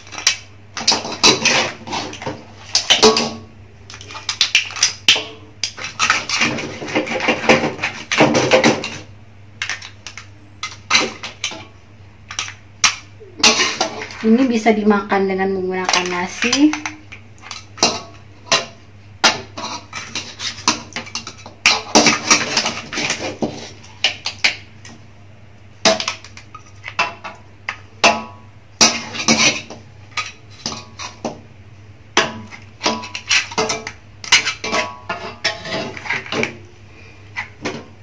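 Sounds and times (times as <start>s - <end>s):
metal spatula scraping a wok: 0.0s - 3.3s, 5.7s - 9.1s, 19.3s - 24.3s, 28.8s - 31.3s, 32.3s - 36.5s.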